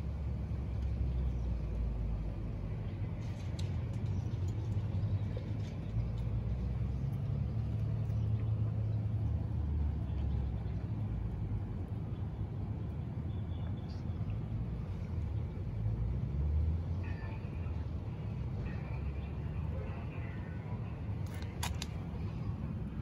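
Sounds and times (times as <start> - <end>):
city traffic rumble: 0.0 - 23.0
faint clicks: 21.2 - 22.4.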